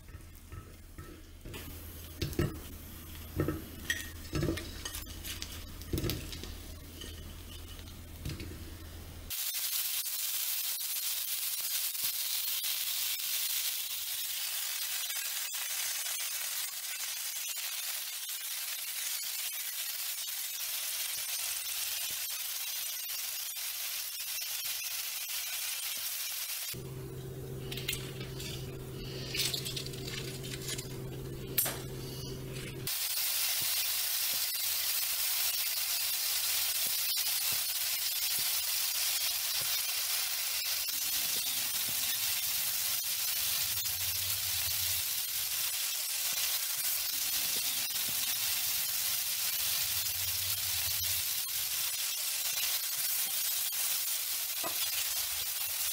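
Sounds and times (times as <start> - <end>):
food sizzling in a pan: 0.0 - 55.9
spatula stirring: 3.4 - 8.1
low steady hum: 26.8 - 32.9.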